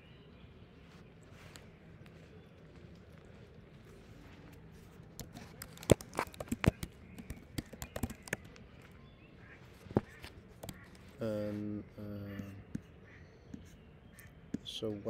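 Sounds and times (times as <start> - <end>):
computer keyboard typing: 5.2 - 8.6, 10.5 - 11.0.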